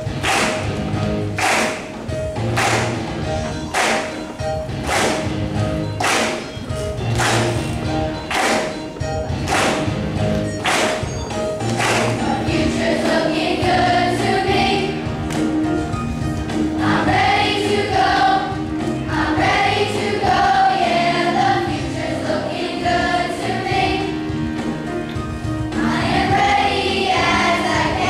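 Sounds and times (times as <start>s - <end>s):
instrumental accompaniment: 0.0s - 28.0s
children's choir singing: 10.6s - 15.7s, 16.5s - 25.1s, 25.7s - 28.0s.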